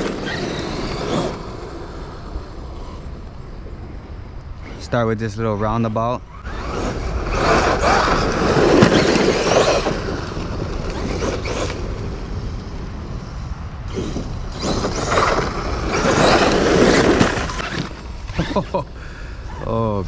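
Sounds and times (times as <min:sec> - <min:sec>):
rc truck motor whining: 0:00.0 - 0:03.7, 0:06.2 - 0:20.0
tyres throwing sand and gravel: 0:06.5 - 0:19.0.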